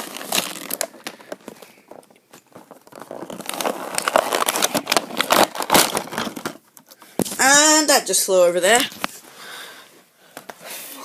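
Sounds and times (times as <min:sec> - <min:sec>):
cardboard box being torn open: 0:00.0 - 0:00.9, 0:03.0 - 0:06.6.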